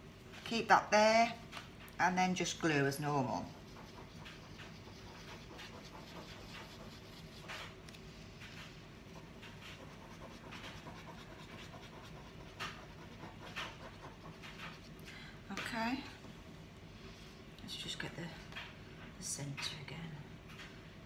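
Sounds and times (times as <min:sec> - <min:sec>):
faint rhythmic panting: 0:03.2 - 0:15.4.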